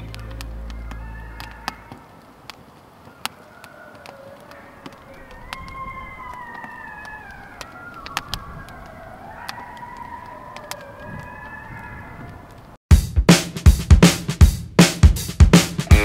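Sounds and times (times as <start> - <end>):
sharp clicks: 0.0 - 11.3.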